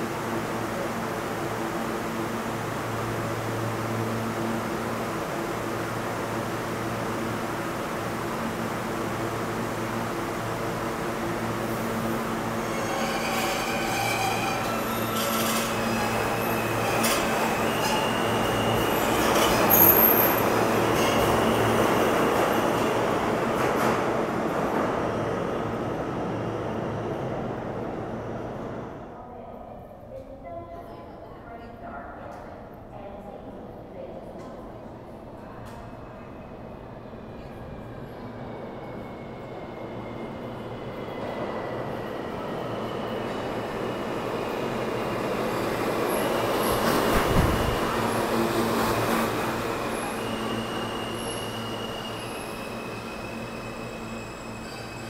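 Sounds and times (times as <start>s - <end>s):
subway train on rails: 0.0s - 55.0s
high wheel squeal: 12.6s - 20.4s, 49.8s - 55.0s.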